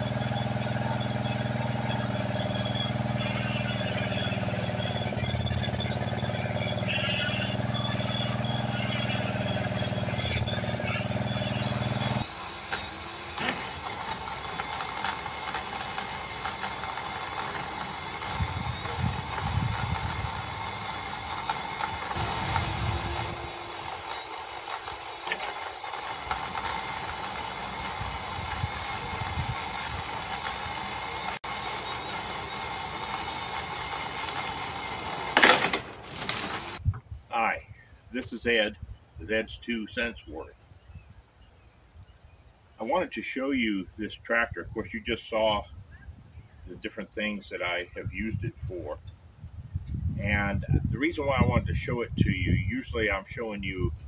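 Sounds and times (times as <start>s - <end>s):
riding mower engine idling: 0.0s - 36.8s.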